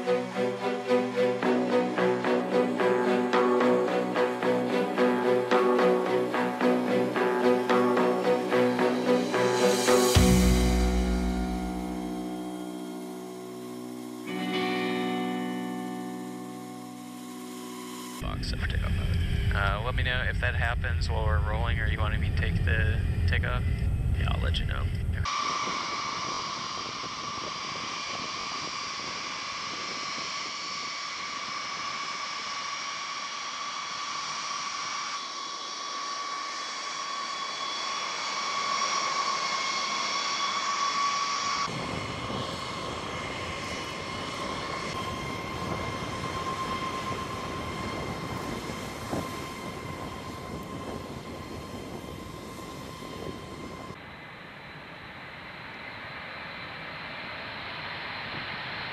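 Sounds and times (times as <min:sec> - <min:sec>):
jet engine whine: 0:00.0 - 0:58.9
deep engine rumble: 0:18.2 - 0:25.4.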